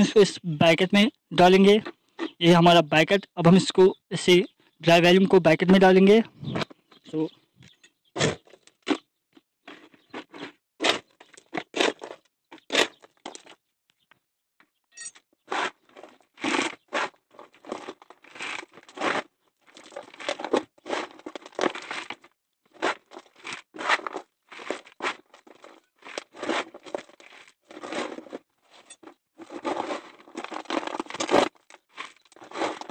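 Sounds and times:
gravel crunching and scraping: 7.7s - 13.7s, 15.3s - 32.9s.

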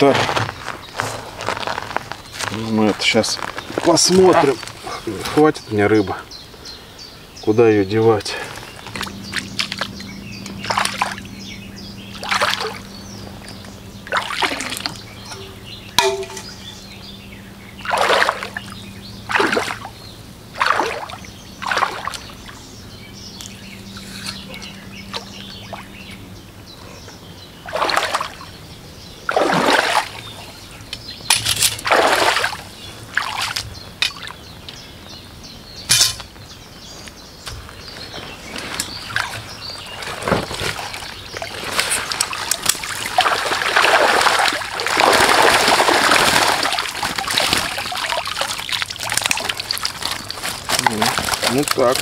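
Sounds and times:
low steady hum: 6.2s - 52.0s
water splashing: 8.8s - 11.4s, 12.0s - 16.8s, 17.8s - 22.7s, 27.6s - 28.6s, 29.3s - 30.5s, 31.7s - 33.6s, 40.2s - 52.0s
water trickling: 8.8s - 26.2s, 40.7s - 52.0s.

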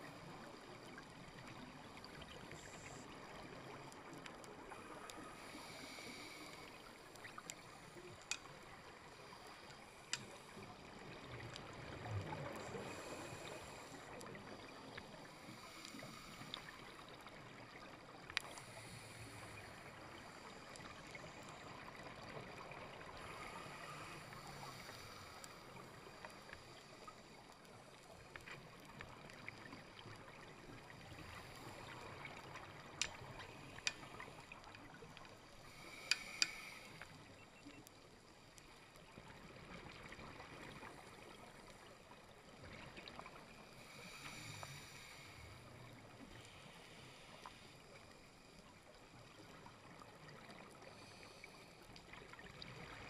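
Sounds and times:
muffled underwater hiss: 0.0s - 53.0s
sharp clicks: 36.0s - 36.6s.

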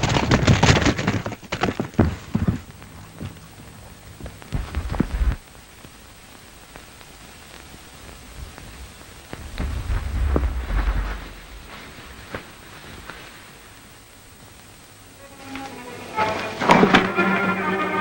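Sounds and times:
horse hoofbeats galloping: 0.0s - 5.4s
film soundtrack hiss: 0.0s - 18.0s.

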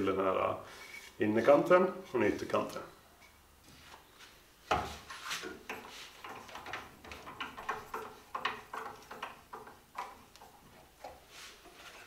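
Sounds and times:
plane shaving wood: 5.9s - 12.0s.

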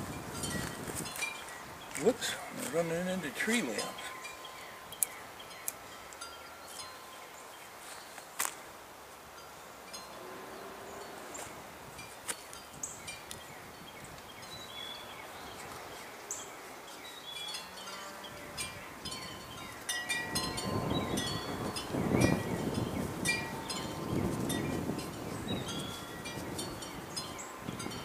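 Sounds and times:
wind gusting on microphone: 0.0s - 6.0s, 10.0s - 17.4s, 18.2s - 28.0s
wind chimes tinkling: 0.1s - 8.3s, 16.3s - 28.0s.

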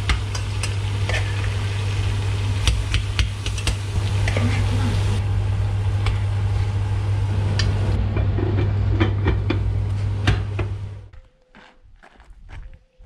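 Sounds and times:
food sizzling in butter: 0.0s - 5.2s
steady low hum: 0.0s - 11.2s.

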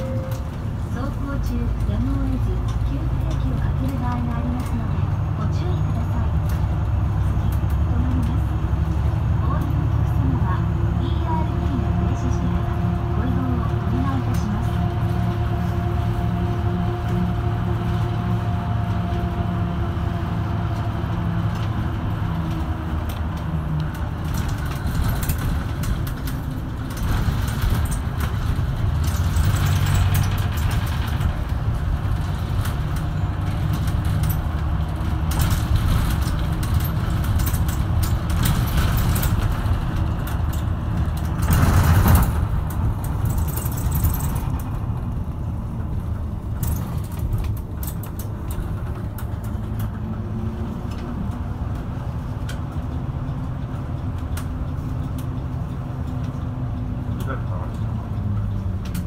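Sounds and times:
bus engine and road noise: 0.0s - 59.0s
interior fittings rattling: 24.1s - 50.5s.

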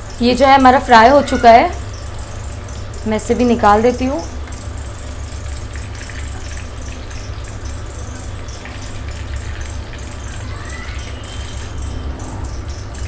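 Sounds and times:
low steady hum: 0.0s - 13.0s
chicken sizzling in hot oil: 3.5s - 11.9s.

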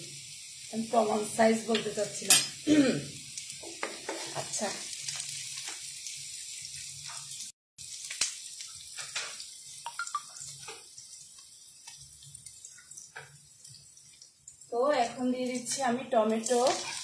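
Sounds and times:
onions sizzling in oil: 0.0s - 17.0s
oil pops and crackles: 3.4s - 5.9s, 7.8s - 14.3s
wooden spatula stirring: 16.4s - 17.0s.

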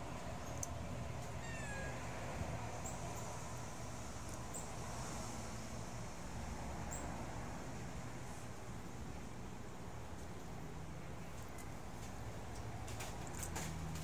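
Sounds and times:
animal call: 1.4s - 2.2s.

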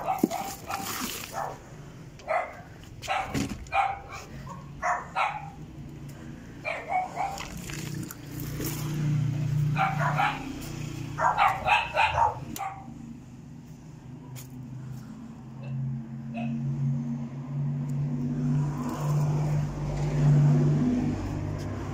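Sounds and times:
dog barking: 0.0s - 1.6s, 2.2s - 5.6s, 6.6s - 7.6s, 9.7s - 13.0s, 16.3s - 16.6s.

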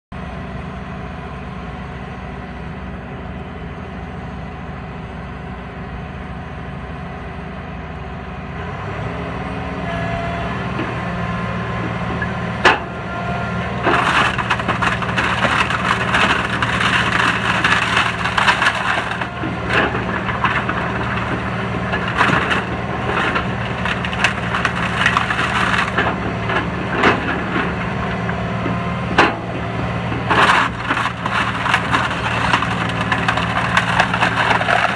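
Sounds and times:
excavator engine running: 0.2s - 34.9s
wooden pallets cracking and splintering: 13.7s - 28.2s, 29.2s - 29.5s, 30.2s - 34.9s.

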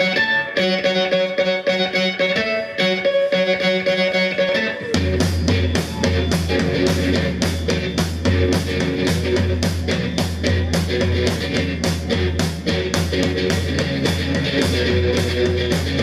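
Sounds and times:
electric guitar riff: 0.0s - 16.0s
drums steady beat: 3.6s - 16.0s.

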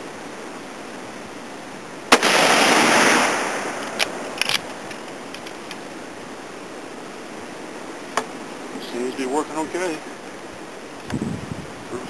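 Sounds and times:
rifle shot echo: 2.1s - 4.0s
rifle bolt clicking: 3.9s - 5.8s.

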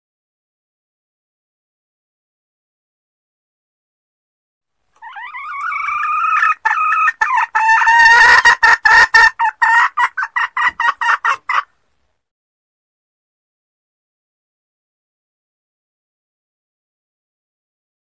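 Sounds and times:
hen clucking rapidly: 5.0s - 11.7s
junglefowl hen calling: 5.0s - 11.7s.

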